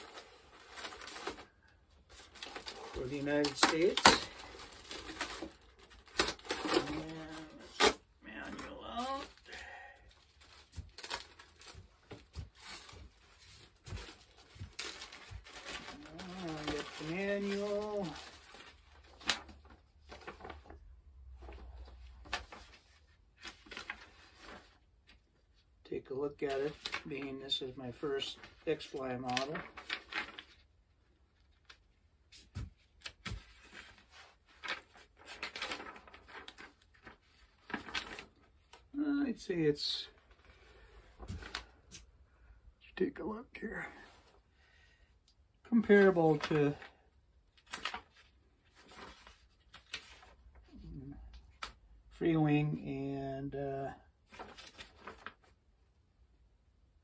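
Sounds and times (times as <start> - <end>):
plastic bag rustling and crinkling: 0.0 - 24.8, 28.3 - 30.6, 33.3 - 38.8, 54.3 - 55.6.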